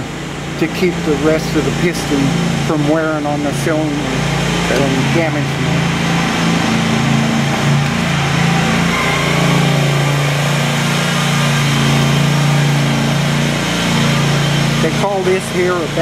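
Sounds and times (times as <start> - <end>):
machine humming: 0.0 - 16.0.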